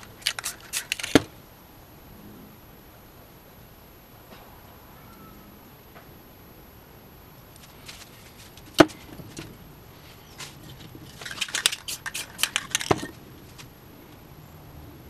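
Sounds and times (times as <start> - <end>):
metallic clicks and clinks: 10.6 - 13.2.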